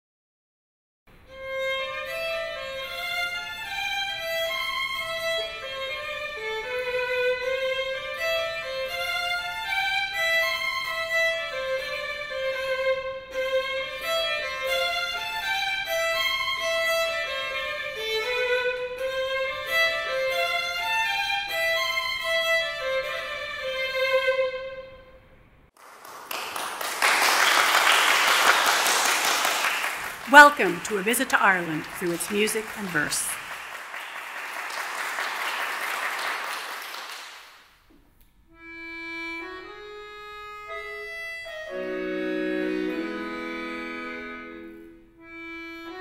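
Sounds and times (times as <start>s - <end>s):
violin melody: 1.3s - 25.2s, 38.6s - 46.0s.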